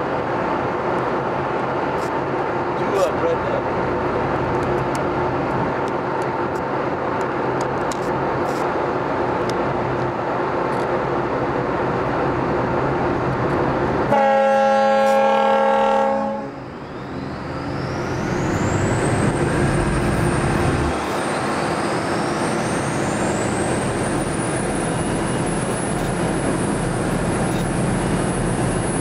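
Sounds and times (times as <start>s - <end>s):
ferry engine and water rumble: 0.0s - 29.0s
deep ship horn blast: 14.1s - 16.6s.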